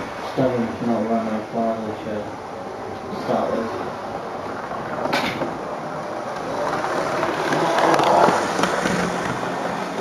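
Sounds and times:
model train rumbling on track: 0.0s - 10.0s
wheel clicks: 6.3s - 10.0s.

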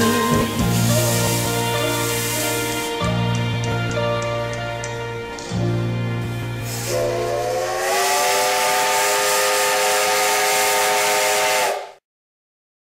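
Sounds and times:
steam locomotive whistle: 0.0s - 3.0s, 6.6s - 12.0s
steam hissing: 0.0s - 3.2s, 6.6s - 12.0s.

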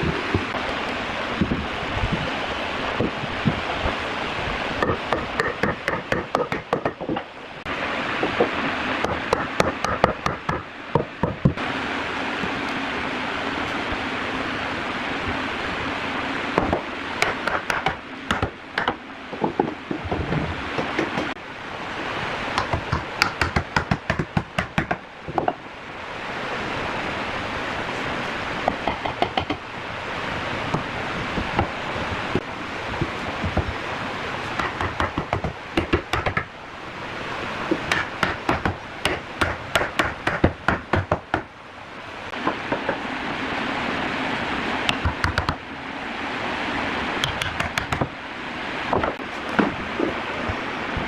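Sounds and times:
wood knocking on wood: 4.8s - 7.3s, 16.6s - 21.4s, 22.6s - 25.6s, 28.7s - 29.6s, 34.6s - 36.5s, 42.4s - 43.0s.

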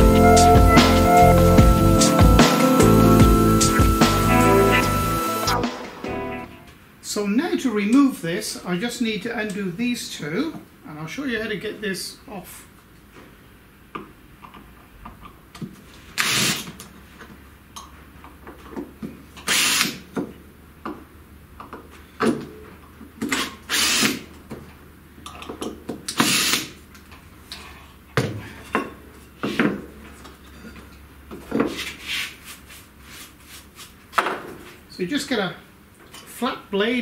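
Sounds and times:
cordless drill bursts: 16.2s - 16.7s, 19.5s - 20.0s, 23.7s - 24.2s, 26.2s - 26.7s.

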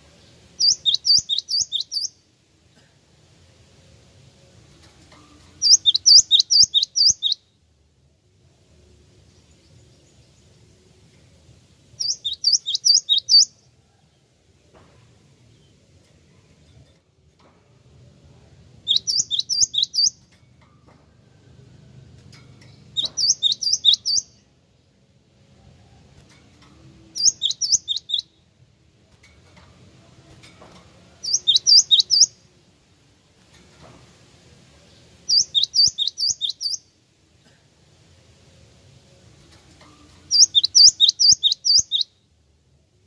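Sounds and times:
bird whistling song: 0.6s - 2.2s, 5.6s - 7.5s, 12.0s - 13.6s, 18.8s - 20.2s, 22.9s - 24.4s, 27.2s - 28.4s, 31.2s - 32.4s, 35.3s - 36.9s, 40.3s - 42.2s.

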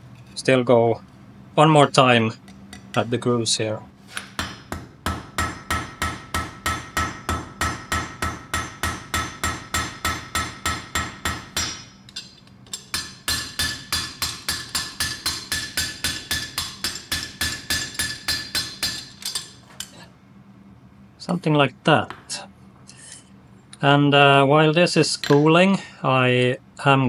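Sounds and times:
hammer striking hot metal: 4.2s - 19.5s.

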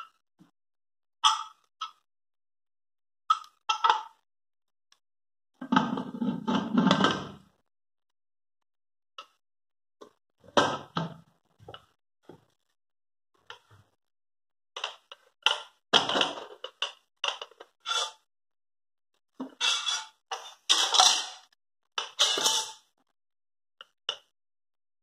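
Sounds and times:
metal lid rattling: 22.2s - 22.7s.

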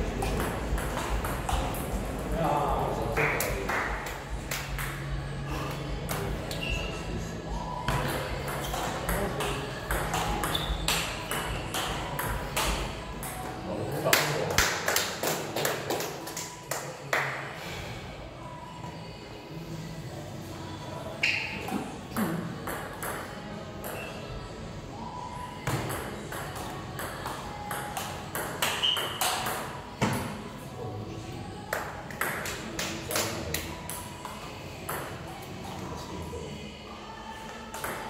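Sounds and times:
ping pong ball hitting bats: 0.2s - 2.3s, 7.9s - 12.8s, 25.7s - 29.7s.

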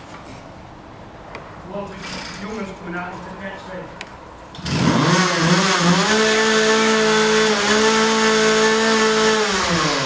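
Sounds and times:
small motor running at high speed: 4.6s - 10.0s.

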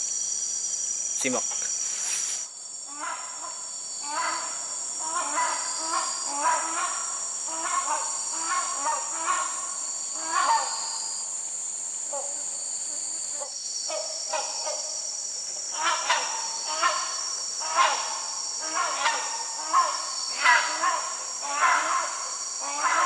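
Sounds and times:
insects buzzing: 0.0s - 23.0s
hornbill calling: 15.7s - 23.0s.

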